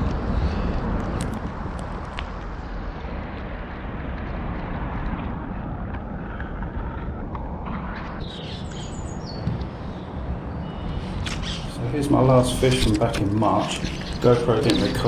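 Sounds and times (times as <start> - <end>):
high bird chirps: 8.2 - 11.8, 13.5 - 15.0.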